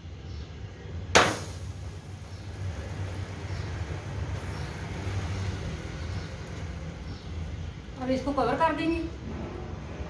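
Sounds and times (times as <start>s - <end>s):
sharp knock: 1.1s - 1.7s.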